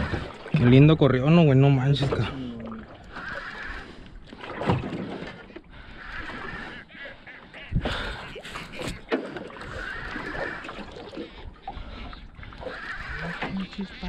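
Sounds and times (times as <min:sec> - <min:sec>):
fishing reel whirring: 0:03.1 - 0:04.0, 0:09.6 - 0:10.8, 0:12.5 - 0:14.0.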